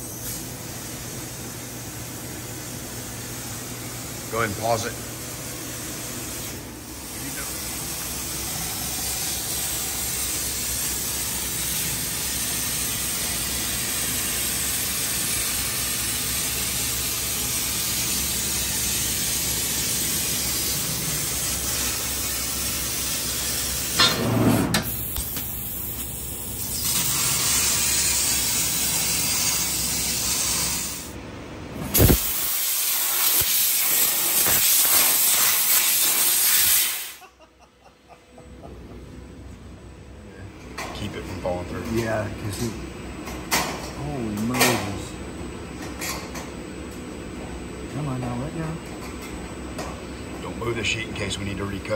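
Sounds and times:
laser cutter gas hiss: 0.0 - 24.1, 24.7 - 31.1, 31.8 - 37.3.

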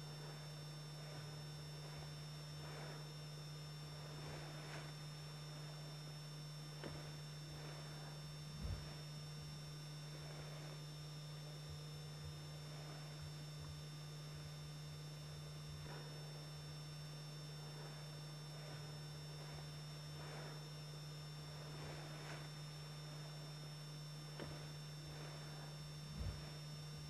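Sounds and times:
background hiss: 0.0 - 3.2, 4.0 - 10.9, 17.5 - 20.7, 21.5 - 26.7
low electrical hum: 0.0 - 27.0.

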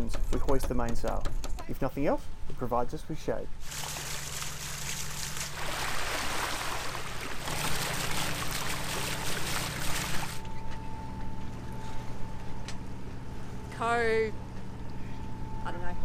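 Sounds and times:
water rushing along hull: 3.6 - 10.5
low engine drone: 3.6 - 16.0
thin steady whine: 7.2 - 16.0.

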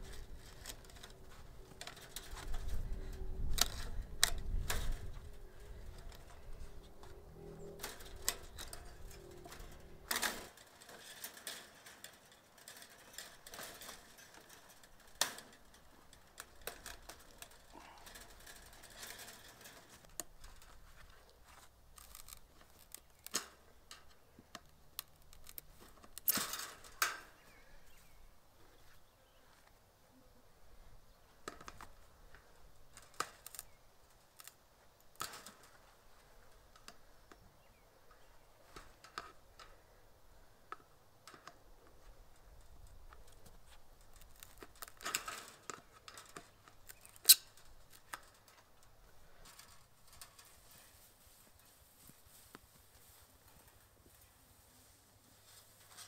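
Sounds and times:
pliers on wire metallic clicks: 44.0 - 48.4.

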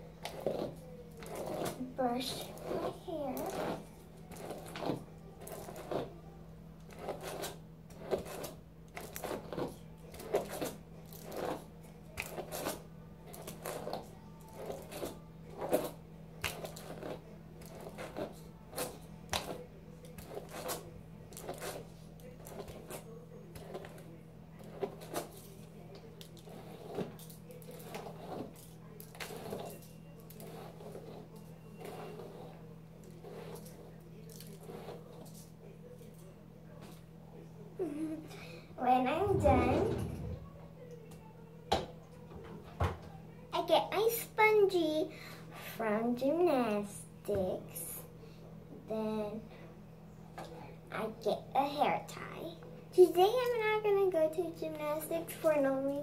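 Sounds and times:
low hum: 38.8 - 41.0.

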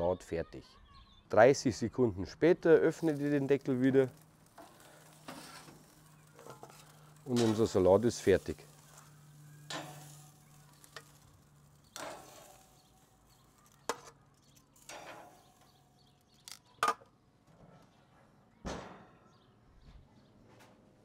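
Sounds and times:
grill utensils clicking and clanking: 2.7 - 16.6.

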